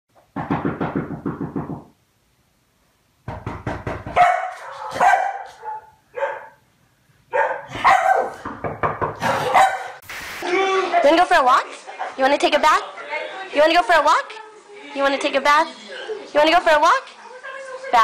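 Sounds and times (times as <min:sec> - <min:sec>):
dog barking and yipping: 0:04.2 - 0:06.6, 0:07.3 - 0:08.4, 0:09.2 - 0:10.0.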